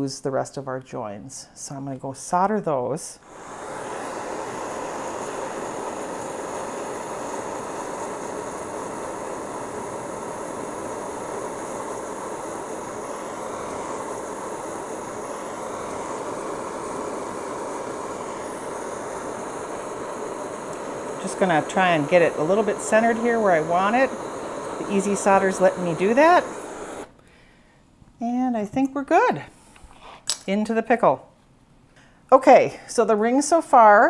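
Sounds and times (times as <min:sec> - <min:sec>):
soldering torch hissing: 0:03.2 - 0:27.2.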